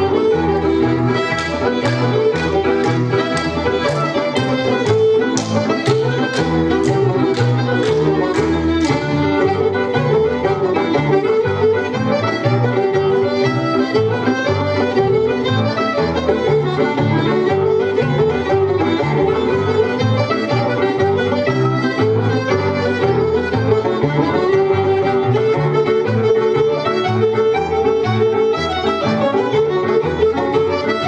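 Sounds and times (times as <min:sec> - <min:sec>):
bouncing bass: 0:00.0 - 0:30.7
fiddle-led folk dance tune: 0:00.0 - 0:31.0
plucked strings: 0:00.0 - 0:31.0
sharp hand claps: 0:01.1 - 0:09.6.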